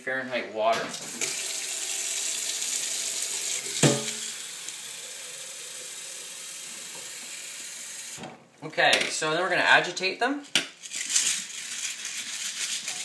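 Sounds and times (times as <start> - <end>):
tap water pouring into pot: 1.0 - 8.2.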